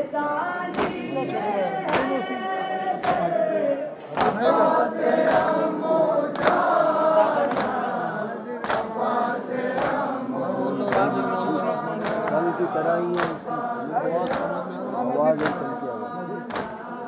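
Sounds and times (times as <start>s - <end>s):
men chanting together: 0.5s - 17.0s
hands slapping chests: 0.7s - 1.1s, 1.8s - 2.3s, 3.0s - 6.7s, 7.4s - 7.9s, 8.6s - 9.0s, 9.7s - 10.2s, 12.0s - 12.4s, 13.1s - 13.4s, 14.2s - 14.6s, 15.4s - 15.7s, 16.5s - 16.8s.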